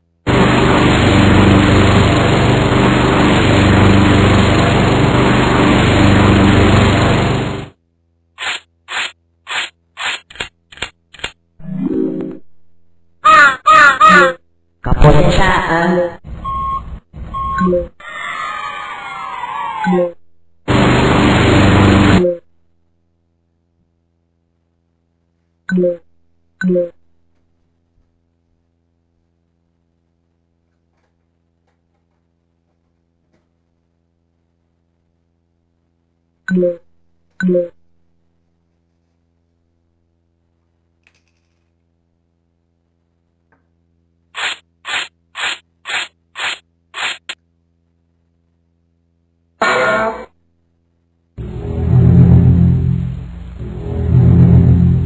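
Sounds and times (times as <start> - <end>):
loud noisy electronic buzz: 0.3 - 7.8, 20.6 - 22.5, 51.4 - 55.0
short low bleeps: 16.4 - 18.0.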